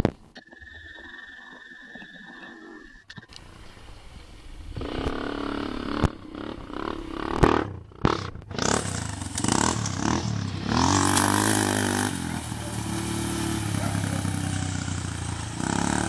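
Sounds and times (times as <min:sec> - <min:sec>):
atv engine revving: 0:04.7 - 0:16.0.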